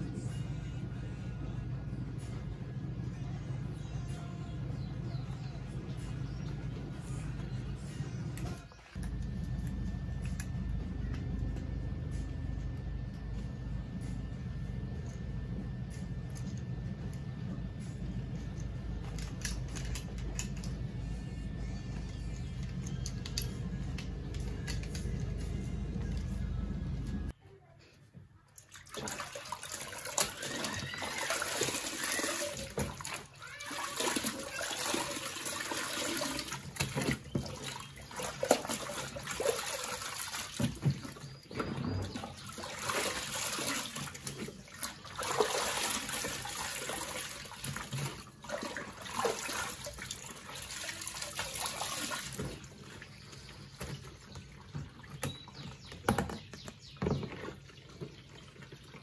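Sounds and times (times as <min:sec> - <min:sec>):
water sloshing and splashing: 0:05.3 - 0:10.6, 0:28.5 - 0:59.0.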